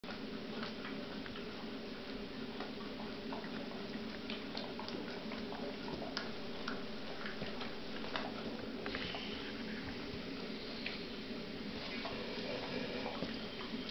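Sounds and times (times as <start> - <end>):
dog licking wet clicks: 2.6 - 8.6
steady background hiss: 5.6 - 13.9.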